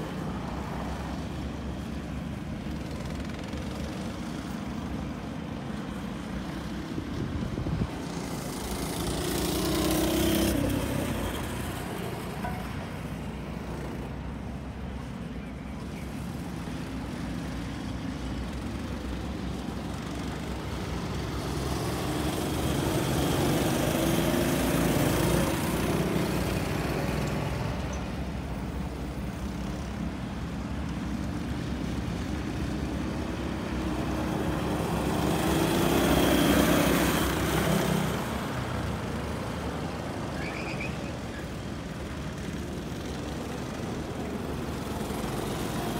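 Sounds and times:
go-kart engines passing: 0:00.0 - 0:45.9.

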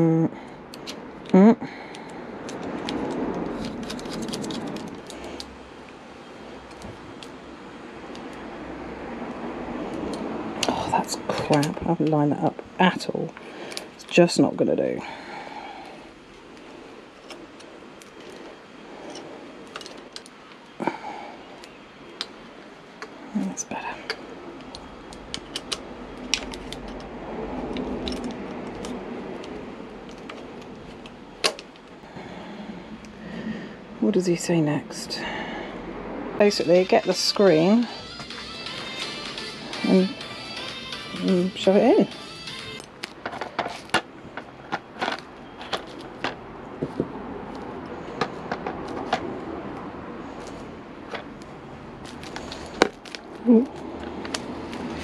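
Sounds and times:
plastic film crinkling: 0:02.4 - 0:07.4, 0:52.0 - 0:55.0.

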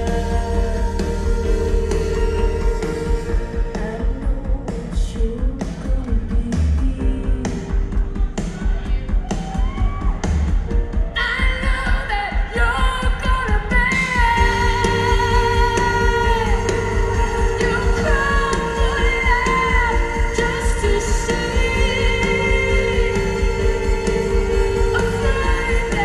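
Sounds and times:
live band music: 0:00.0 - 0:06.2, 0:06.8 - 0:26.0
woman singing long notes: 0:00.0 - 0:07.7, 0:14.2 - 0:26.0.

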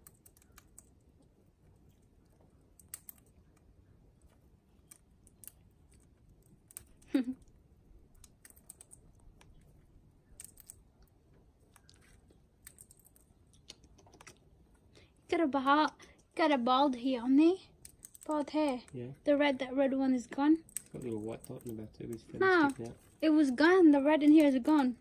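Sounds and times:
bird cracking seeds: 0:02.6 - 0:03.6, 0:08.1 - 0:11.1, 0:11.7 - 0:14.5, 0:17.7 - 0:19.0.

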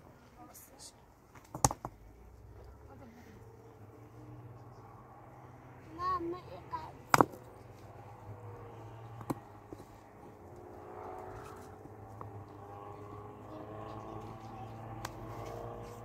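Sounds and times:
stones knocking: 0:01.4 - 0:02.0
distant engine running: 0:02.2 - 0:16.0.

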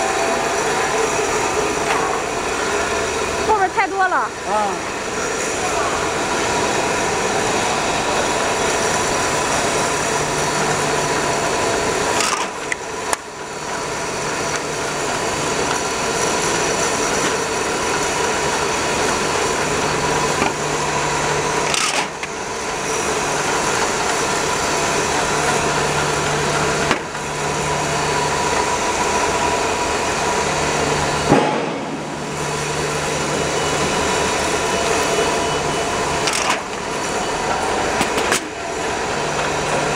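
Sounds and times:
conveyor drive motor humming: 0:00.0 - 0:39.9.

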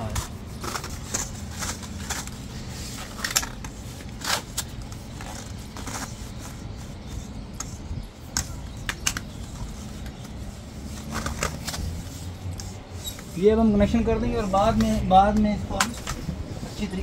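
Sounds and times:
plastic conduit clicks and scrapes: 0:07.6 - 0:10.4, 0:11.0 - 0:12.0.

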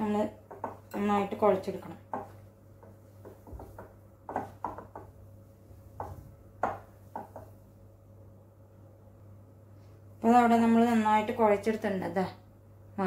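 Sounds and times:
low steady hum: 0:00.0 - 0:13.0
hands kneading dough: 0:02.0 - 0:07.7
fingers tapping glass bowl: 0:06.0 - 0:07.5.

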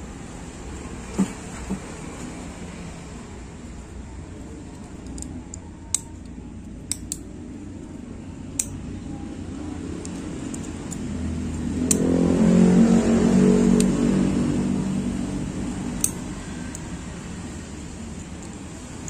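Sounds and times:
low steady rumble: 0:00.0 - 0:19.0
vehicle engine: 0:00.0 - 0:19.0
metal tweezers clicking: 0:04.7 - 0:07.3, 0:08.5 - 0:08.8, 0:10.0 - 0:12.2, 0:15.9 - 0:17.0.

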